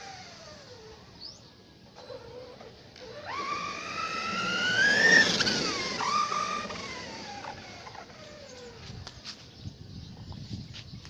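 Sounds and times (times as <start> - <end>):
rc truck motor whine: 0.0 - 9.2.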